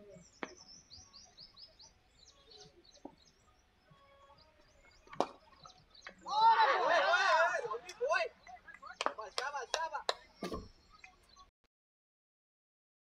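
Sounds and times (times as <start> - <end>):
small birds chirping: 0.0 - 11.5
cricket ball knock: 5.0 - 6.2.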